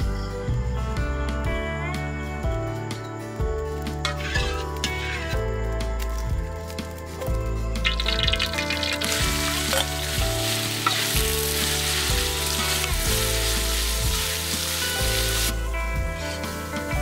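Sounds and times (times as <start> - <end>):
metal spatula stirring: 7.8 - 15.5
ginger sizzling in hot oil: 7.8 - 17.0.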